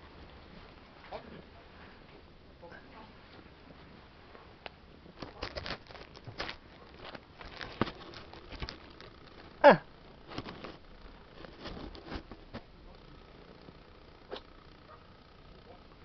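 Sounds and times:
light rustling: 5.2s - 9.6s, 10.2s - 12.7s.

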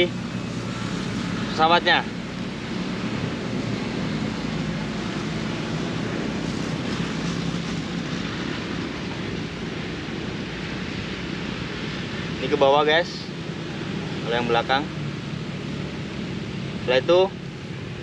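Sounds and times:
wind rushing over microphone: 0.0s - 18.0s.

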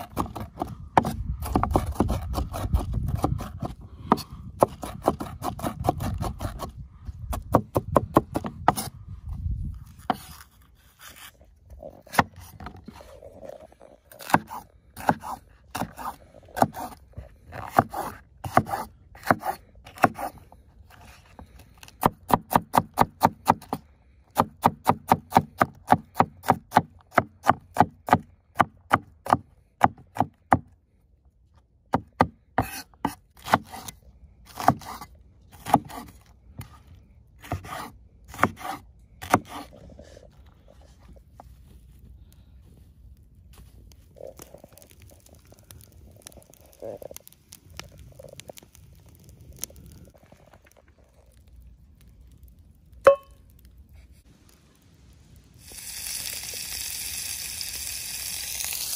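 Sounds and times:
knife chopping on wooden board: 37.4s - 39.6s.

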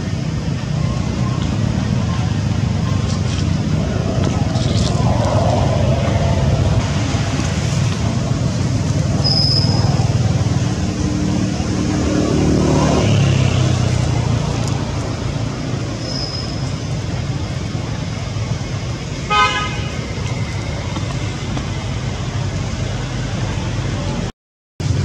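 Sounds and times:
road traffic rumble: 0.0s - 25.0s
vehicle engine passing: 0.6s - 18.9s.

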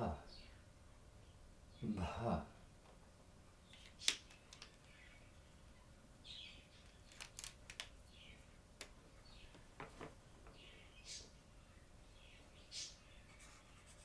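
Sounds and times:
marker pens clicking and tapping: 3.7s - 4.9s, 6.8s - 8.0s
marker stroking on paper: 13.3s - 14.0s.

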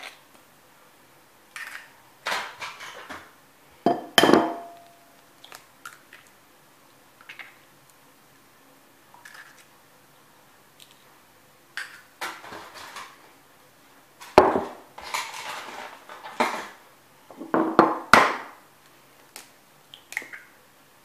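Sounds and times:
eggshell and glass knocks: 3.9s - 4.8s
scraping and rustling: 15.0s - 16.8s.

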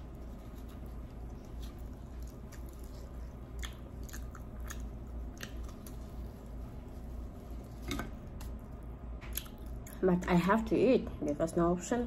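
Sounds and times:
person chewing crunchy flatbread: 0.0s - 8.6s, 9.3s - 10.0s
low hum: 0.0s - 11.8s.

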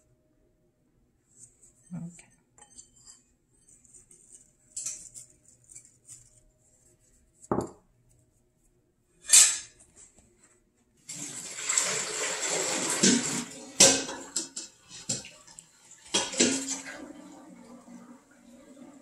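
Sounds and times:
sugar pattering on metal tin: 4.0s - 6.5s
bowl knocking on counter: 7.5s - 7.8s.

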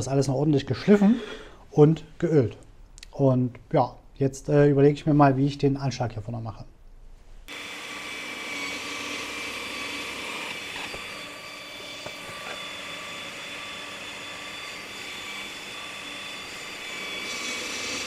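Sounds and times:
electric motor whining: 7.5s - 18.0s.

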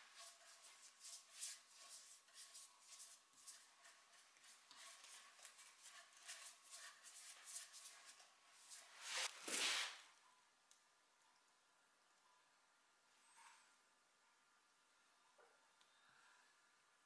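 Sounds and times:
paintbrush swishes: 0.0s - 10.0s.

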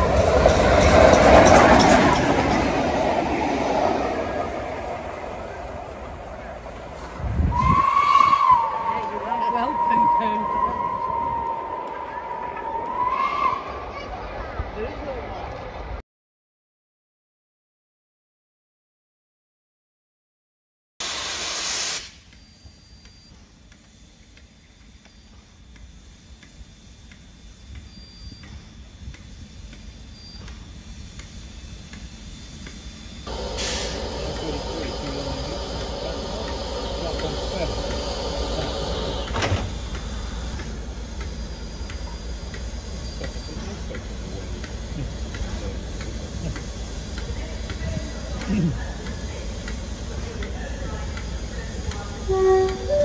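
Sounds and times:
steam locomotive rumbling: 0.0s - 14.8s, 27.3s - 53.0s
loud hiss of steam: 21.0s - 22.4s, 33.2s - 53.0s
light ticking: 31.9s - 51.3s
steady low rumble: 33.3s - 52.1s
light regular clicks: 39.2s - 51.3s.

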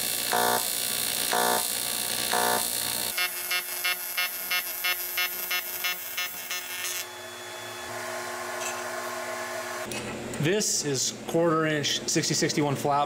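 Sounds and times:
welding arc buzzing and pulsing: 0.0s - 7.2s.

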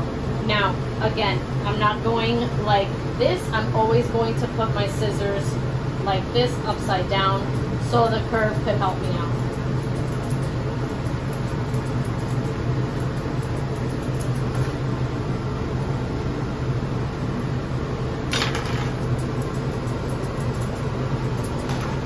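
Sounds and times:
mechanical whir with low hum: 0.0s - 22.0s
shears snipping fur: 8.4s - 14.8s.

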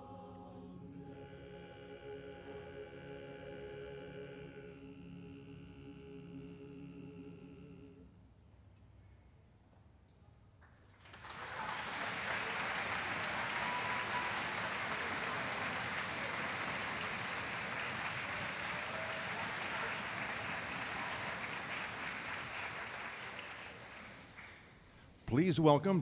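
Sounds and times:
large audience applauding: 11.0s - 25.0s.

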